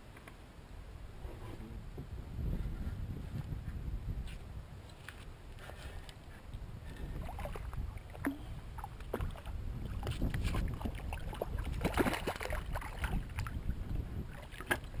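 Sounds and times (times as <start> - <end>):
water splashing: 7.0 - 15.0.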